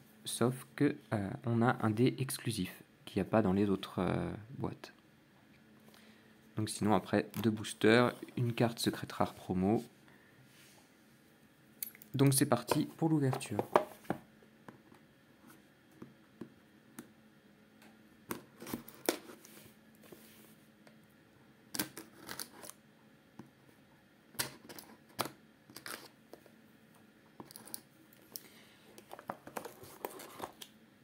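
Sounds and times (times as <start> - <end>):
cardboard rustling: 29.3 - 30.6.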